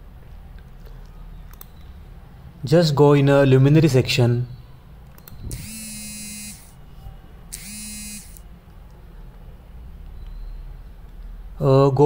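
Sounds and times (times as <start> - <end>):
low electric buzzes: 5.2 - 6.9, 7.5 - 8.5.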